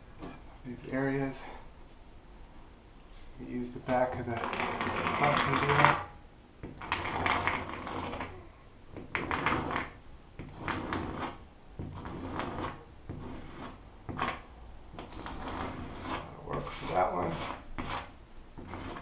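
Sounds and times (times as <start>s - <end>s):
plastic tube scraping ceiling: 4.0s - 8.4s, 9.0s - 19.0s.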